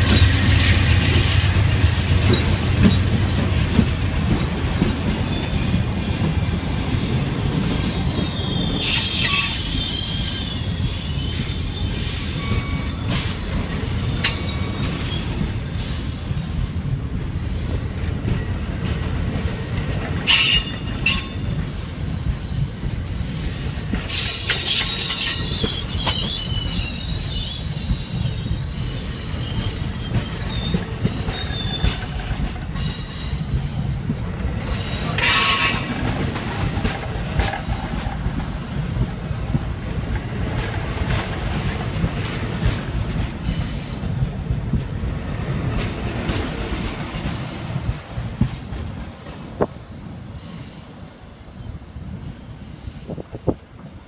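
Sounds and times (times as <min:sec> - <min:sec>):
sharp clicks of train: 0:00.0 - 0:51.0, 0:52.1 - 0:54.0
train rumbling past: 0:00.0 - 0:54.0
high wavering wheel squeals: 0:05.3 - 0:15.4, 0:24.0 - 0:33.4.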